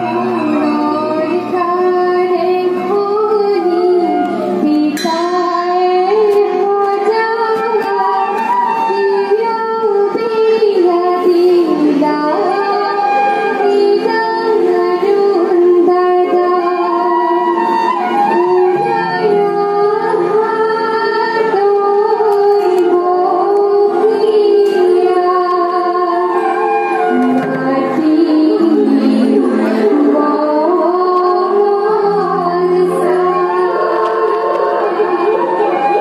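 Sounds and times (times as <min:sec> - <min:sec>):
person singing long gliding notes: 0:00.0 - 0:36.0
instruments playing: 0:24.3 - 0:36.0.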